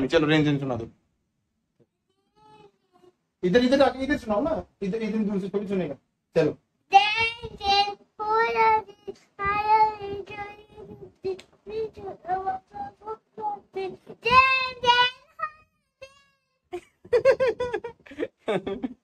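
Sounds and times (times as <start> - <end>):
boy singing: 6.9 - 16.2.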